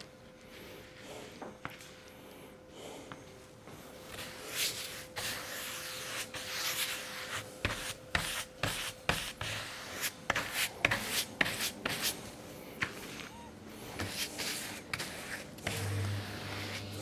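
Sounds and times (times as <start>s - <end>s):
brush scrubbing on wood: 14.0s - 17.0s.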